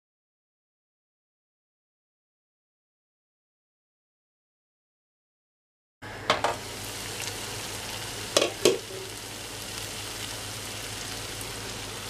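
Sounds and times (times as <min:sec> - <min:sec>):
food sizzling in a pan: 0:06.0 - 0:12.0.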